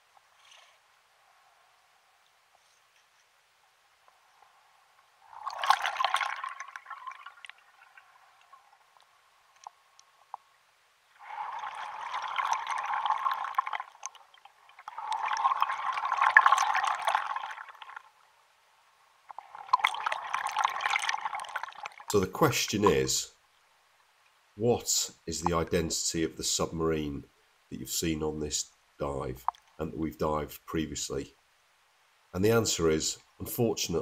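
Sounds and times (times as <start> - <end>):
underwater bubbles rushing: 5.2 - 8.2, 11.2 - 18.0, 19.4 - 22.1.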